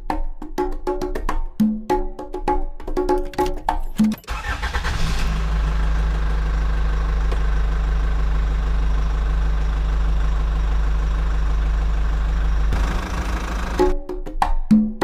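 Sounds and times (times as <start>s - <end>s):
engine idling: 4.3s - 14.0s.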